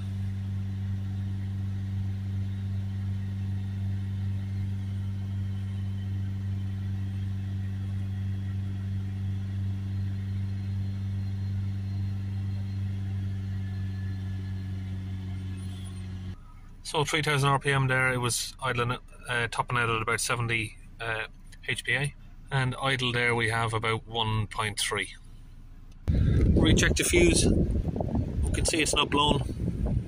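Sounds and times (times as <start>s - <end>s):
diesel engine running fast: 0.0s - 18.6s, 25.2s - 30.0s.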